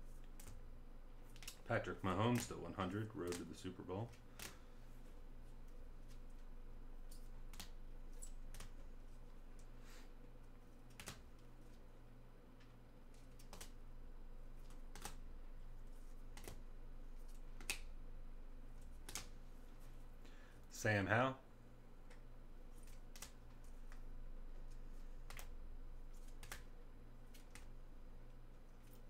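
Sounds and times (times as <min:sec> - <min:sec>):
faint steady hum: 0:00.0 - 0:29.0
cards clicking and tapping: 0:01.3 - 0:01.6, 0:04.1 - 0:04.6, 0:10.9 - 0:11.4, 0:13.2 - 0:13.8, 0:14.6 - 0:15.2, 0:16.3 - 0:16.6, 0:19.0 - 0:19.4, 0:25.2 - 0:25.6, 0:26.2 - 0:26.7.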